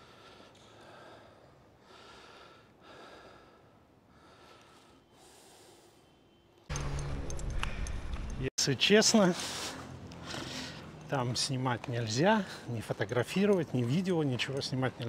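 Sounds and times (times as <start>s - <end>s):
person breathing heavily: 0.0s - 6.2s, 9.3s - 11.0s.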